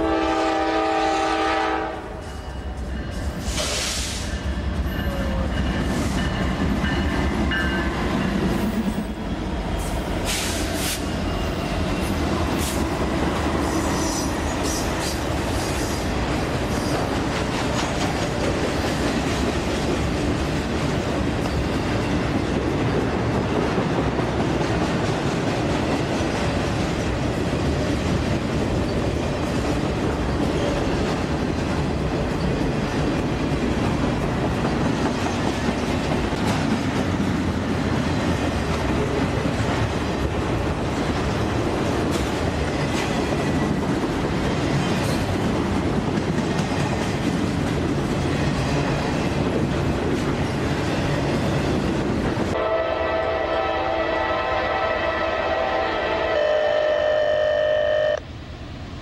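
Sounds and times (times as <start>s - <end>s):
freight train wheels rumbling: 0.0s - 56.6s.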